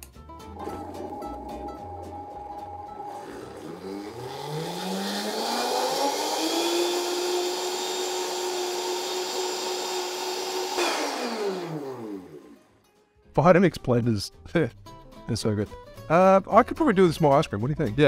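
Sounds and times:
blender motor running: 0.5s - 12.7s.

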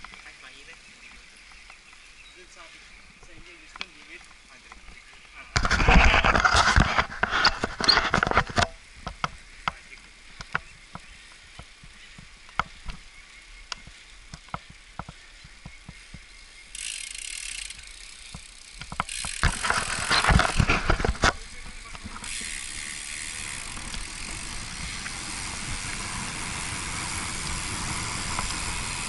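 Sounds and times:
bicycle clicks and ticks: 3.3s - 5.4s, 7.3s - 29.0s
wind noise: 5.4s - 9.6s, 18.8s - 29.0s.

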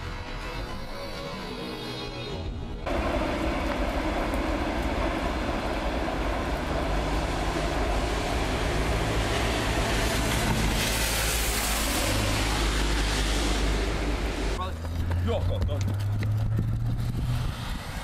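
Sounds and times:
low train hum: 0.0s - 15.2s
train wheels rumbling on rail: 2.9s - 12.2s.

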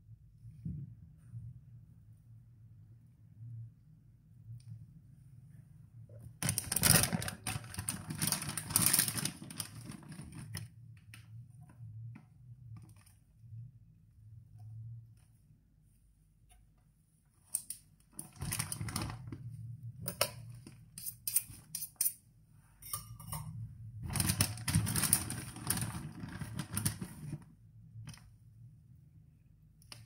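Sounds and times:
paper rustling: 6.4s - 10.6s, 24.1s - 27.4s.

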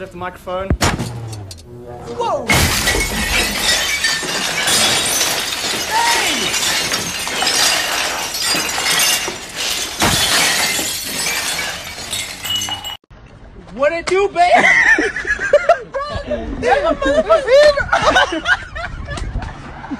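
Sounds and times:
ceramic mugs shattering on floor: 2.5s - 13.0s.

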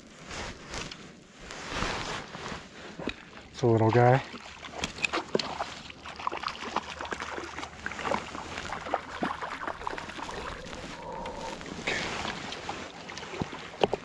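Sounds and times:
fish splashing at water surface: 4.3s - 14.0s.

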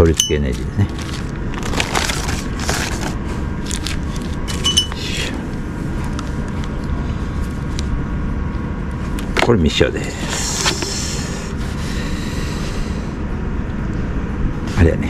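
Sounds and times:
plastic bags rustling: 0.0s - 5.0s
steady low rumble: 0.0s - 15.0s
cable scraping over carpet: 0.9s - 4.7s.

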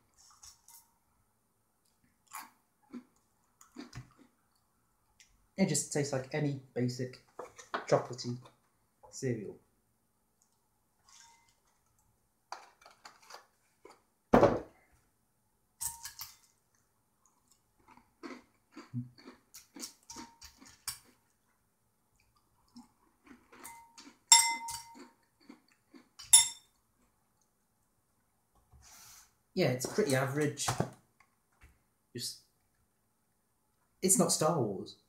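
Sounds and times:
crunchy cereal chewing: 2.2s - 4.3s, 16.2s - 21.4s, 22.2s - 24.3s, 24.9s - 26.3s
thump: 14.3s - 14.7s
spoon clinking in ceramic bowl: 23.6s - 25.0s, 26.2s - 26.7s.

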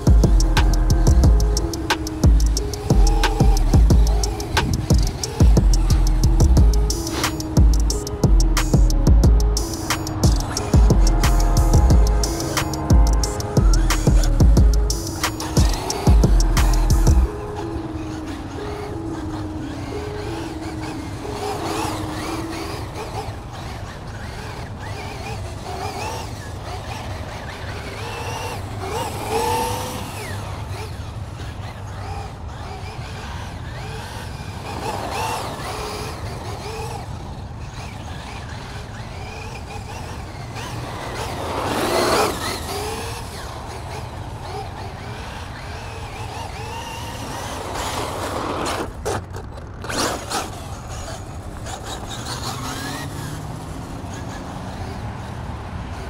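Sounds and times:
steady low hum: 0.0s - 18.7s
traffic ambience: 0.0s - 56.0s
vehicle passing: 0.0s - 56.0s.

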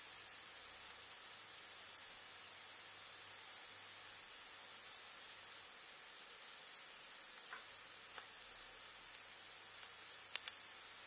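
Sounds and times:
onions sizzling in a frying pan: 0.0s - 11.0s
small crackles: 3.3s - 11.0s.

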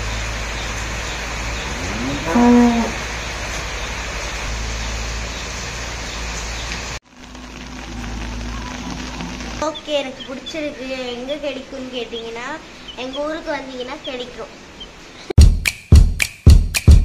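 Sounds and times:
rain hiss: 0.0s - 15.3s
cow mooing: 1.5s - 3.1s.

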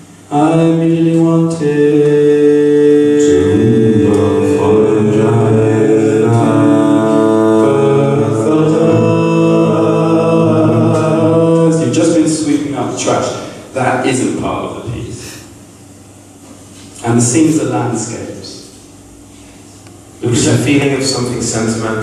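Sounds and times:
drone-like chord: 0.0s - 13.6s
person singing held chant-like notes: 0.3s - 13.0s.

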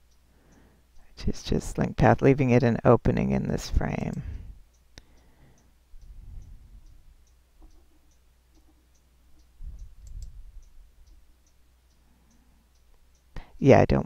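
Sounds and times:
faint ticking: 0.0s - 1.3s, 3.9s - 14.0s
soft low rumbles: 5.8s - 7.8s, 8.6s - 11.4s
computer mouse click: 6.4s - 10.4s.

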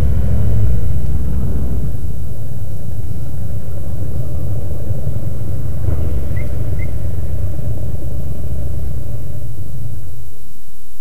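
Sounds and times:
motorcycle engines idling: 0.0s - 11.0s.

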